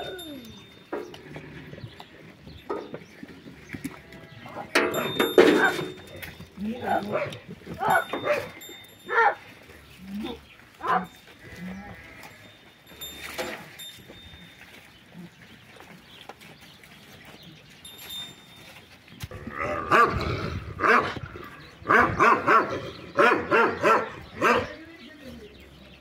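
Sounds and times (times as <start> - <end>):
dog barking: 7.1 - 9.4, 10.8 - 11.1, 20.8 - 21.2, 21.9 - 24.8.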